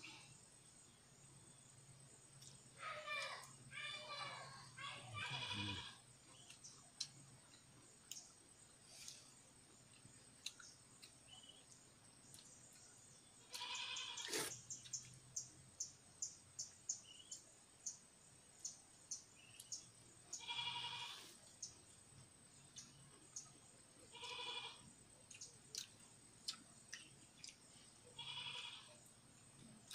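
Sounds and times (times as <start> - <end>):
goat bleating: 5.2 - 6.0, 13.5 - 14.5, 20.4 - 21.3, 24.1 - 24.8, 28.2 - 28.9.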